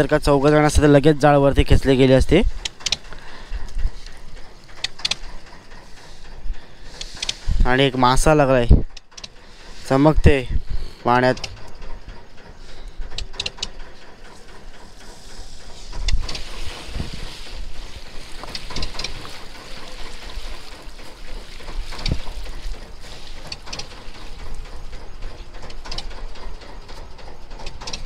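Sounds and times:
wind on microphone: 0:08.6 - 0:08.9, 0:16.0 - 0:19.4
water splashing and dripping: 0:16.0 - 0:26.2.

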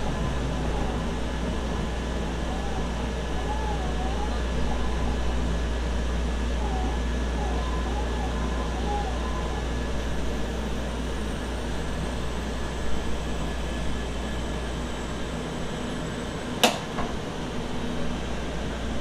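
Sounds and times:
train cabin rumble with hiss: 0:00.0 - 0:19.0.

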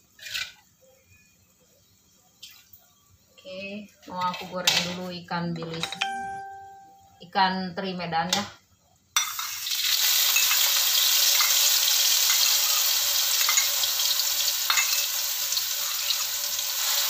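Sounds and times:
fish sizzling in hot oil: 0:09.2 - 0:17.0.

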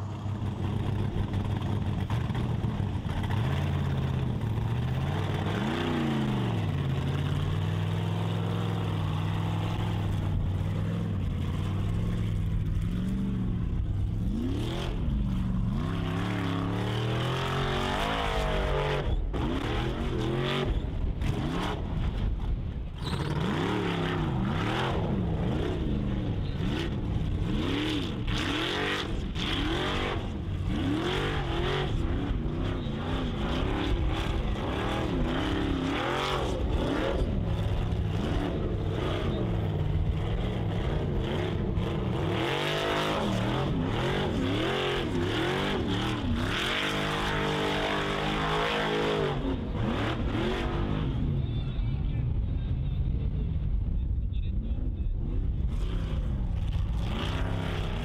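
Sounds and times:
wheels spinning in dirt: 0:00.0 - 0:20.0, 0:20.7 - 0:27.2
buggy engine revving hard: 0:00.6 - 0:22.4, 0:23.0 - 0:51.5, 0:55.7 - 0:58.0.

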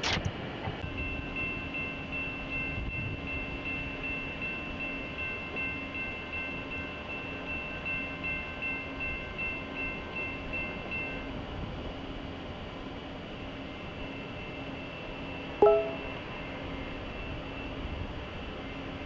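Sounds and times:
crossing warning bell ringing: 0:00.9 - 0:11.3, 0:15.6 - 0:16.3.

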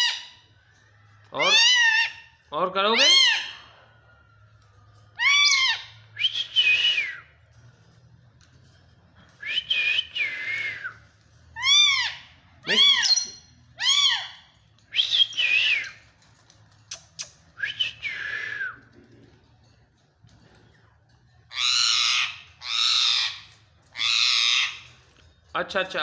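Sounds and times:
parakeet whistled calls: 0:11.6 - 0:14.3.

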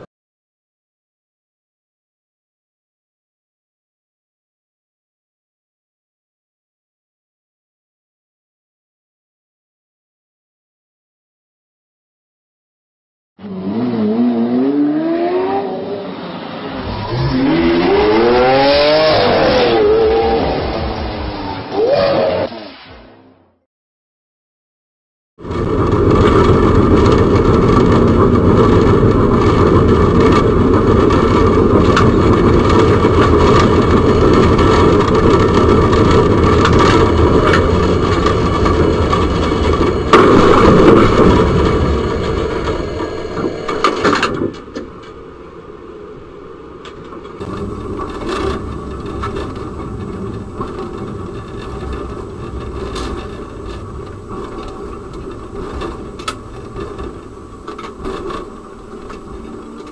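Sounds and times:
tram rumbling on rails: 0:13.5 - 0:22.6, 0:25.4 - 0:59.9.

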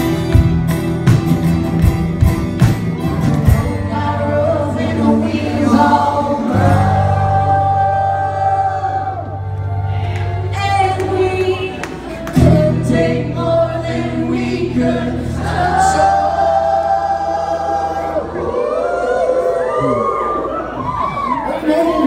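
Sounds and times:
drum beats: 0:00.0 - 0:03.9
acoustic guitar: 0:00.0 - 0:18.2.

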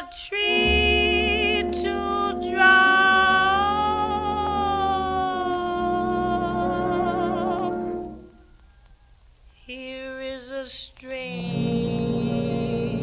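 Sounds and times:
woman singing jazz with vibrato: 0:00.0 - 0:08.3, 0:09.6 - 0:13.0
small jazz band: 0:00.0 - 0:08.4.

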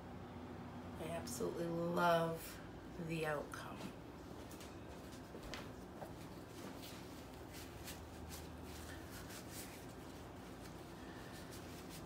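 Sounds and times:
paper towel rustling: 0:04.3 - 0:12.0.

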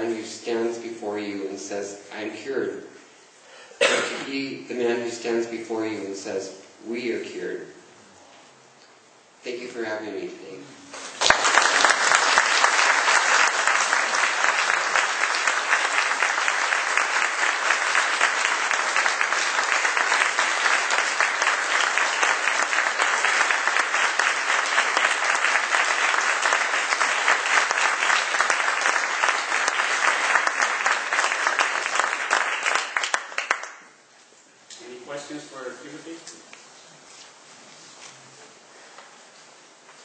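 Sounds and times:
audience applauding: 0:11.0 - 0:33.9.

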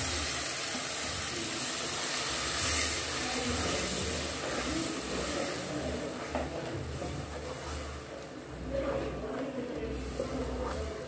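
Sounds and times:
tomatoes sizzling in hot oil: 0:00.0 - 0:08.2
wooden spoon stirring: 0:02.1 - 0:08.4.

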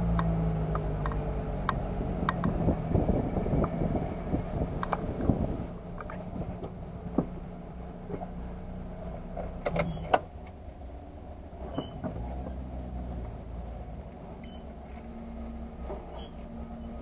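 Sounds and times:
car engine idling: 0:00.0 - 0:17.0
sharp clicks and knocks: 0:00.1 - 0:02.6, 0:09.6 - 0:10.6.

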